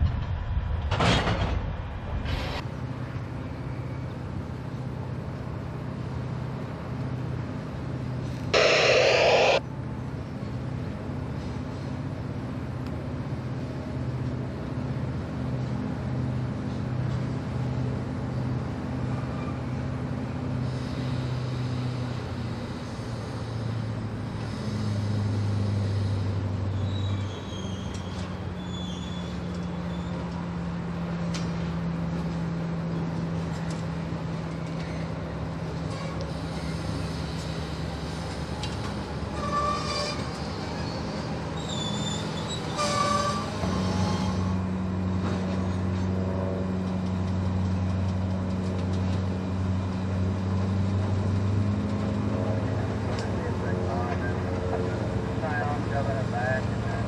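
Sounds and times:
diesel locomotive running: 0.0s - 57.0s
loud horn blast: 8.6s - 9.6s.

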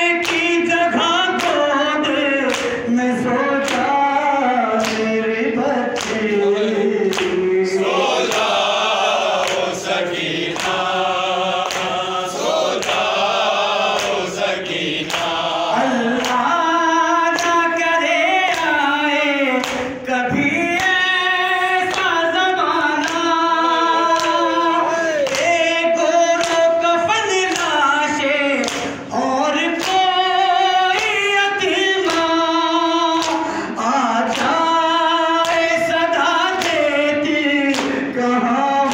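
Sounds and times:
man chanting a lament: 0.0s - 12.8s, 13.5s - 38.9s
hand slapping chest: 9.4s - 9.7s, 11.6s - 12.0s.

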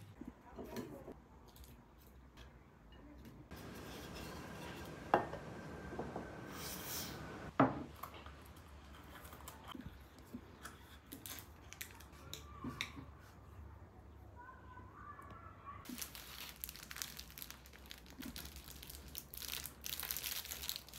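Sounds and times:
kitchenware sharp knocks: 3.6s - 6.4s.

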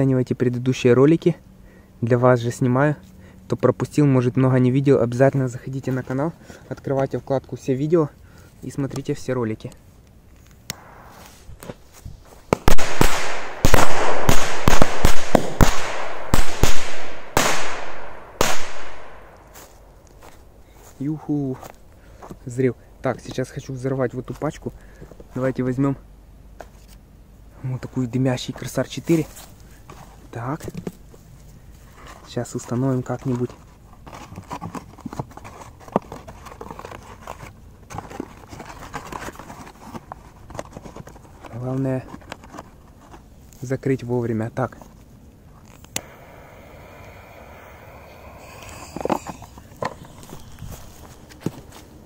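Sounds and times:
firecrackers banging: 12.5s - 19.2s
rustling and scraping cardboard: 28.5s - 43.8s, 48.9s - 52.0s.

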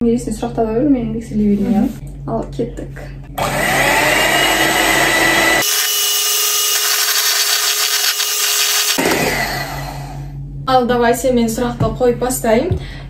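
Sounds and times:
electric hand mixer whisking: 3.4s - 10.3s.

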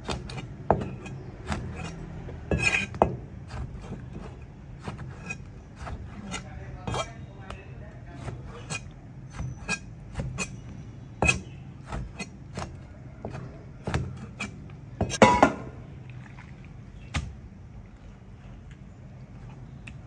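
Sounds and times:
cleaver chopping on plastic board: 0.0s - 7.1s, 8.2s - 15.7s.

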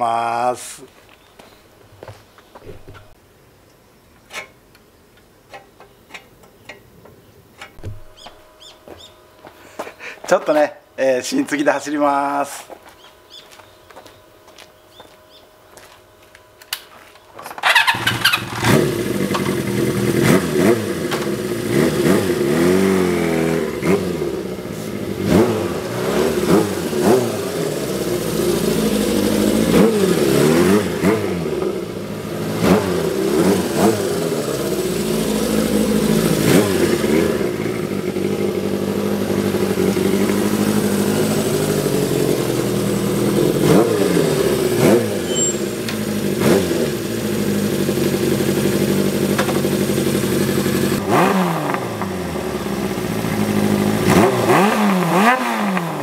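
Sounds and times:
motorcycle engine revving: 17.6s - 56.0s.

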